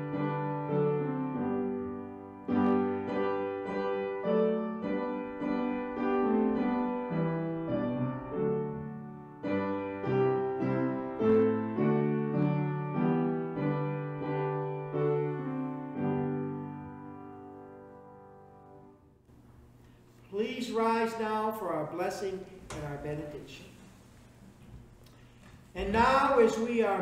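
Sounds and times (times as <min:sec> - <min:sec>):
piano playing slow hymn chords: 0:00.0 - 0:19.3.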